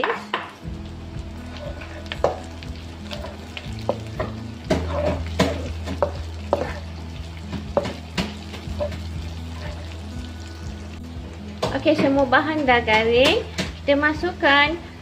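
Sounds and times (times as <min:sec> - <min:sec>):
onions sizzling in hot oil: 0:00.0 - 0:15.0
spatula scraping and tapping pan: 0:01.6 - 0:02.5, 0:03.1 - 0:06.9, 0:07.5 - 0:09.9.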